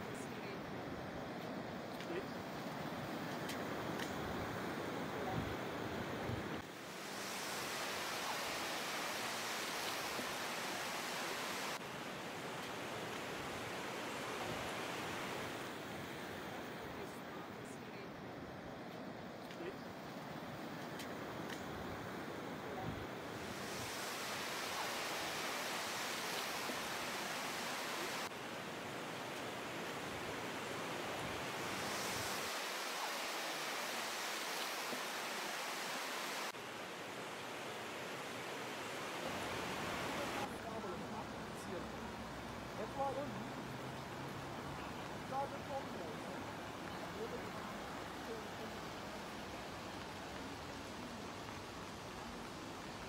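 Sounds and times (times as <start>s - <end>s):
river rushing: 0.0s - 53.0s.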